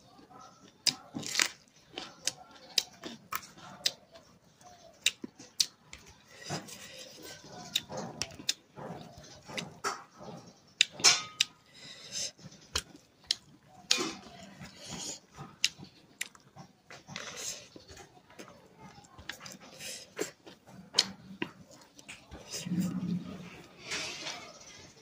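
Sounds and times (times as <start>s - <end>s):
chewing with wet mouth clicks: 0.2s - 23.3s
crunchy bite: 0.8s - 4.0s.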